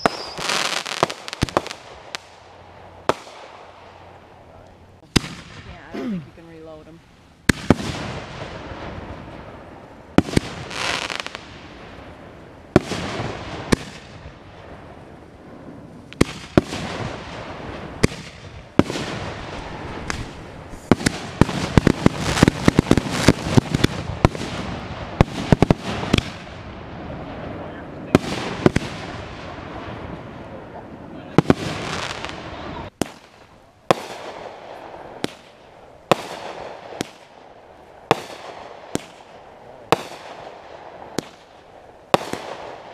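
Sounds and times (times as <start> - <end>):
firework bangs: 0.0 - 6.4, 7.4 - 42.9
rapid firework pops: 7.5 - 8.4, 12.7 - 14.4, 16.1 - 17.4, 18.0 - 26.5, 33.0 - 37.3, 38.1 - 42.9.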